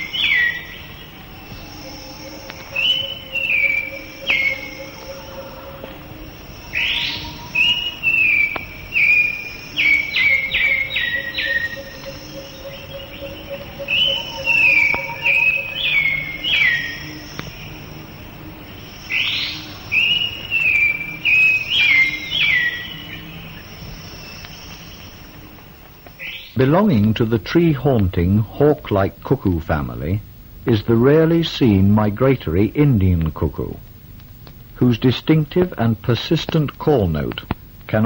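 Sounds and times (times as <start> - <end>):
bird whistled calls: 0.0 - 5.7, 6.4 - 17.7, 18.9 - 25.1
high insect drone: 0.0 - 38.0.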